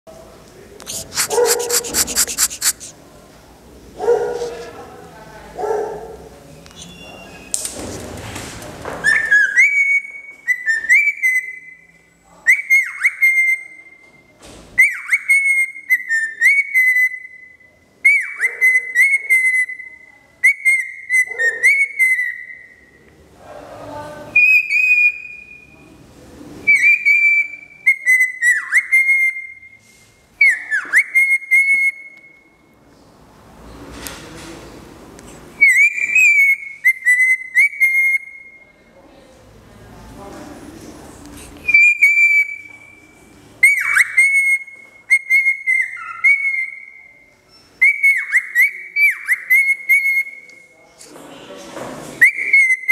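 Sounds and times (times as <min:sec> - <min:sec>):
cockatiel whistling: 0:00.8 - 0:02.9, 0:06.7 - 0:07.6, 0:26.7 - 0:29.6, 0:35.6 - 0:38.5, 0:41.6 - 0:43.0, 0:43.6 - 0:50.5.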